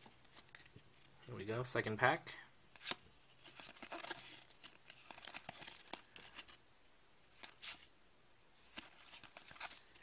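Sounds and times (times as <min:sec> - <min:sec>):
cards being flipped through: 0:00.0 - 0:01.1, 0:02.7 - 0:06.6, 0:08.7 - 0:10.0.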